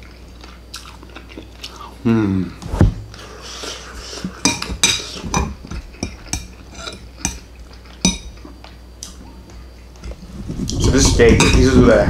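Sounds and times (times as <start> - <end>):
cutlery clinking on plates: 11.1 - 11.7.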